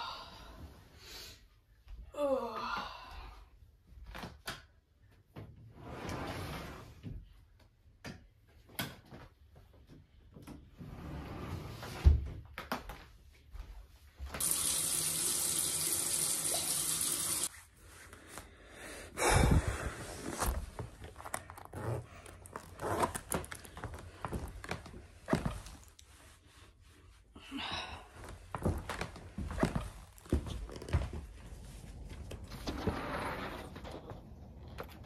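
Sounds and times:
bathroom tap running: 14.4 - 17.5.

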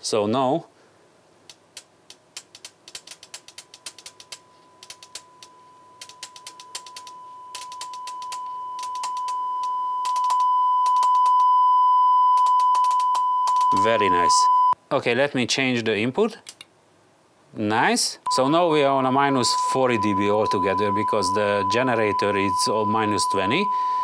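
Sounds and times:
steady test tone: 3.7 - 14.8, 18.3 - 24.0.

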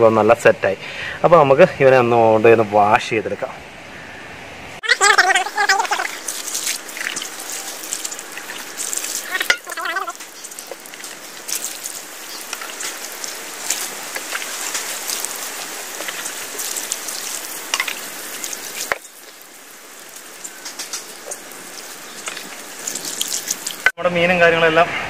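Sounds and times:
water trickling over fish: 5.0 - 23.9
hands rubbing wet fish: 5.2 - 23.9.

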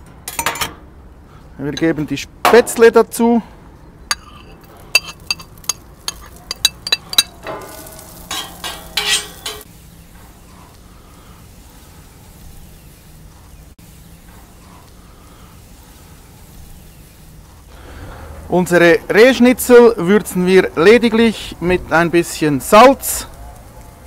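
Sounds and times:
sharp clinks: 4.1 - 9.6
noodles sizzling: 4.1 - 21.0.

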